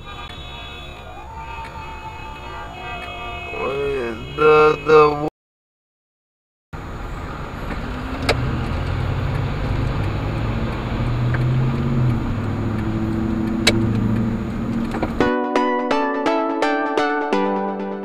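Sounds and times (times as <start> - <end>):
road noise: 0.0 - 5.3, 6.8 - 15.3
car engine running: 6.8 - 15.2
sharp clicks: 7.7 - 15.2.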